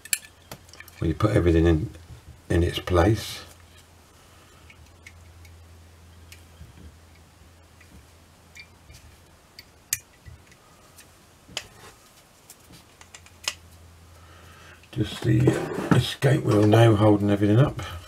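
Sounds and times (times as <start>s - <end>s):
metallic clicks of clock parts: 0.0s - 1.0s
faint low hum: 0.0s - 18.0s.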